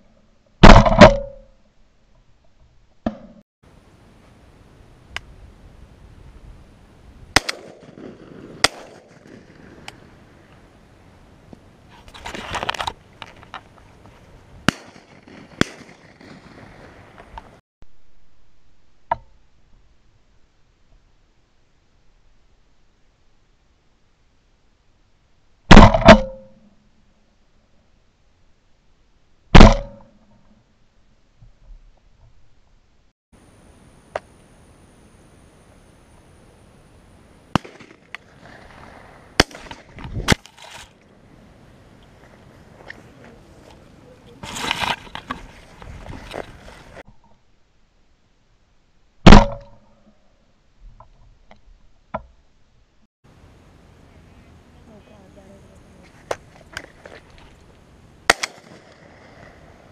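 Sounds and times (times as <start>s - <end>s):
shotgun shots: 7.4s - 9.4s, 14.6s - 16.5s, 25.7s - 26.5s, 29.6s - 30.1s, 37.5s - 38.5s, 39.4s - 39.9s, 49.2s - 49.7s, 58.3s - 58.9s
faint sharp crack: 58.3s - 59.5s.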